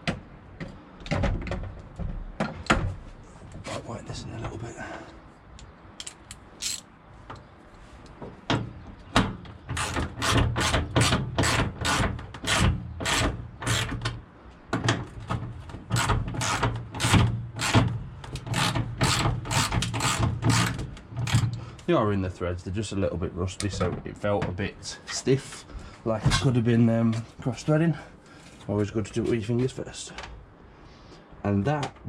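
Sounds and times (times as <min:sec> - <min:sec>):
ratchet wrench clicking: 0:06.0 - 0:06.8.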